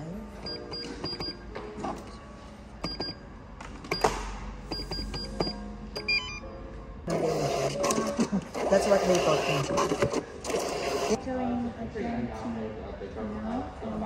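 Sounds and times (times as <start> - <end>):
keypad button beeps: 0.4 - 1.4, 2.8 - 3.2, 4.7 - 6.5.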